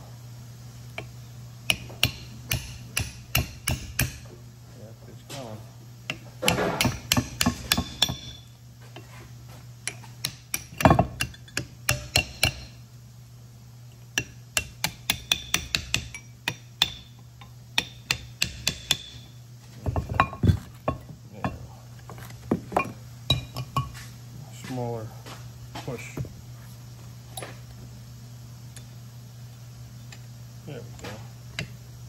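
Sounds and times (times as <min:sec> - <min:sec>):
hammer tapping metal: 0:01.7 - 0:04.3, 0:06.1 - 0:08.5, 0:09.8 - 0:12.8, 0:14.1 - 0:21.7, 0:22.7 - 0:24.0.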